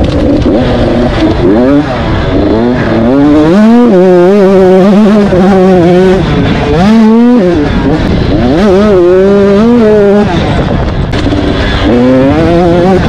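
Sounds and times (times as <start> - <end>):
motocross bike engine revving: 0.0 - 13.0.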